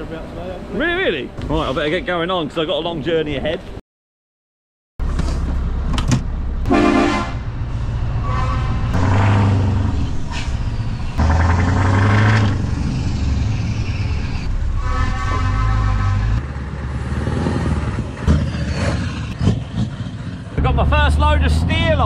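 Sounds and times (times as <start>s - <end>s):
horn toots: 6.6s - 7.5s, 8.2s - 9.6s, 14.6s - 16.4s.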